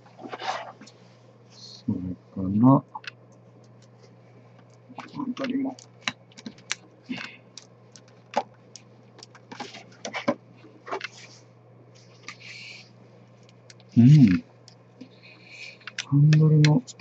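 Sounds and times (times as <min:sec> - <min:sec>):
plastic clicking and cracking: 0:04.6 - 0:10.2.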